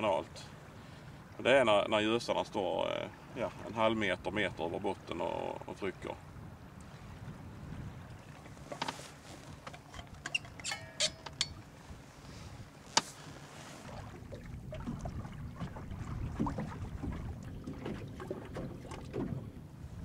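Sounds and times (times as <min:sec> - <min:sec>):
boat engine rumbling: 0:00.0 - 0:20.0
thermos and cup clinking: 0:10.3 - 0:11.6.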